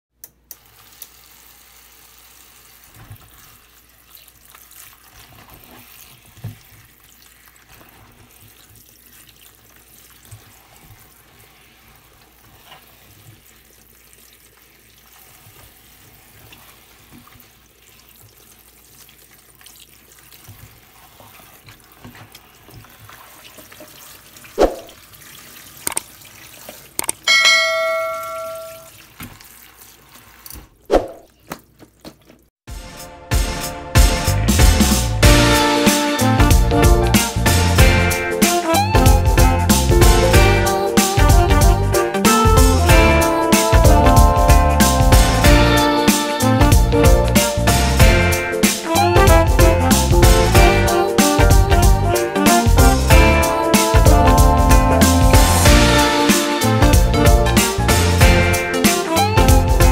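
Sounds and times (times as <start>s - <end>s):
tap water running: 0.3s - 32.5s
bell-like ding: 27.3s - 28.9s.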